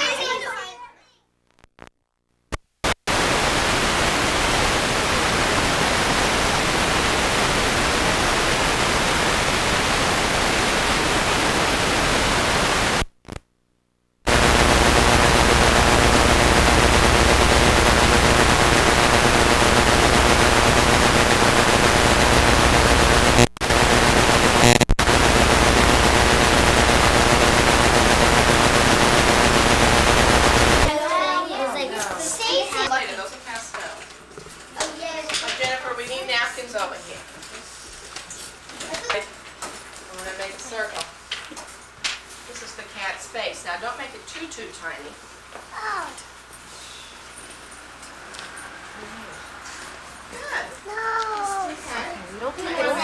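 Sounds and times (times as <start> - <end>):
videotape static hiss: 1.2 - 31.0, 38.6 - 46.5.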